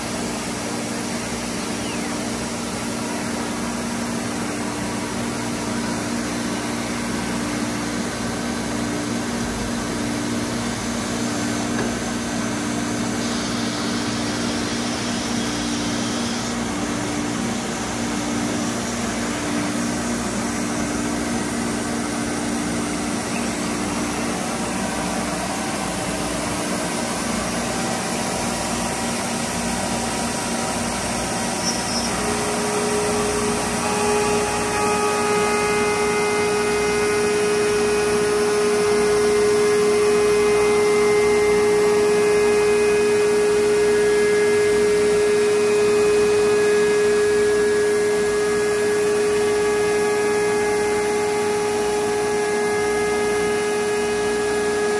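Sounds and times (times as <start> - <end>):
router spindle whirring: 8.7 - 54.9
higher tone: 31.5 - 54.9.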